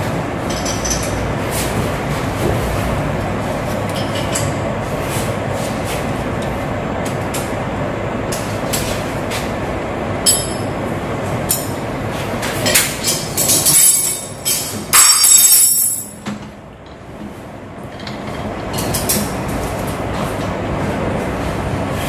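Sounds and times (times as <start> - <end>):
metal tools clinking: 13.0 - 16.2.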